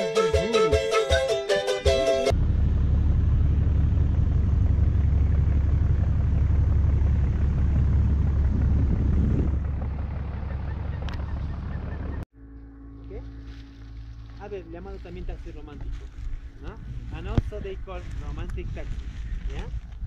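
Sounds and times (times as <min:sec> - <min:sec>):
boat engine rumble: 0:02.2 - 0:20.0
wind buffeting microphone: 0:06.9 - 0:12.2, 0:15.8 - 0:20.0.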